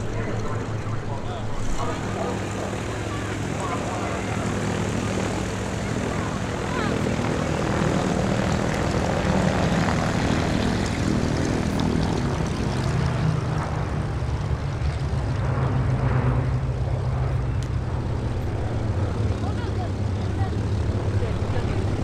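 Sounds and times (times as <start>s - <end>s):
propeller aircraft engines flying over: 0.0s - 22.0s.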